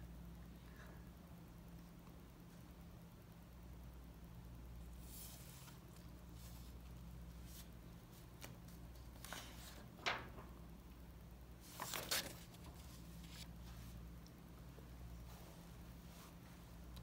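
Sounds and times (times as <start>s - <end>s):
low steady hum: 0.0s - 17.0s
paper pages rustling: 7.4s - 10.4s, 11.6s - 14.0s
paper crackle: 11.6s - 13.5s.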